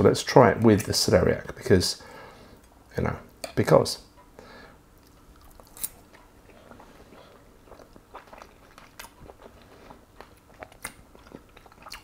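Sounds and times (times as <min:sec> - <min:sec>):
man chewing food: 0:04.2 - 0:12.0.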